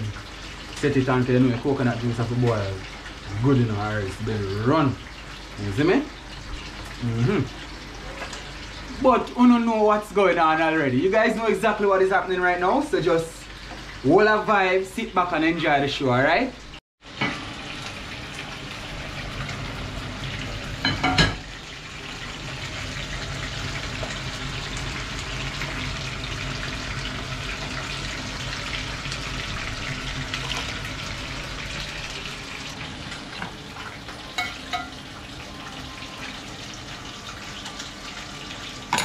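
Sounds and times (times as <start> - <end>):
fish sizzling in hot oil: 16.4 - 39.0
pots and utensils knocking: 20.8 - 21.5, 34.4 - 35.0.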